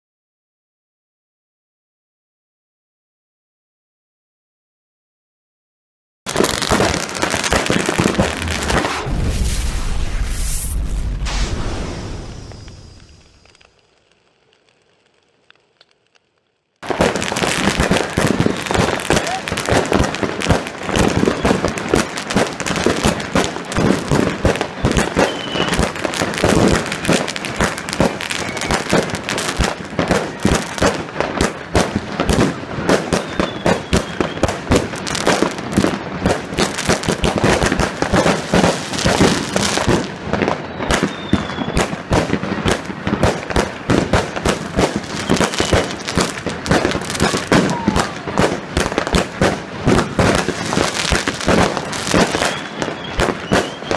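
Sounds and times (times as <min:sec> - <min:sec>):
fireworks cracks and bangs: 0:06.3 - 0:53.9.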